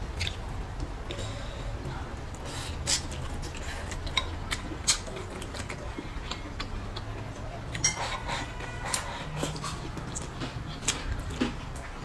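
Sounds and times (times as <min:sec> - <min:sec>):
crunchy chewing: 0:02.4 - 0:12.0.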